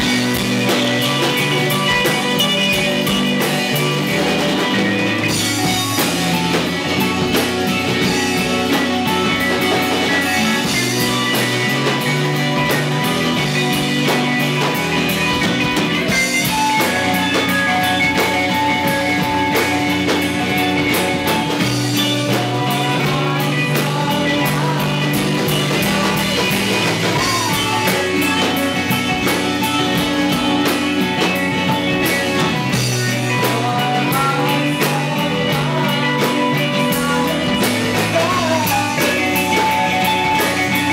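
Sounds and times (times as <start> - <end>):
bass guitar: 0.0 - 40.9
drum kit: 0.0 - 40.9
electric guitars: 0.0 - 40.9.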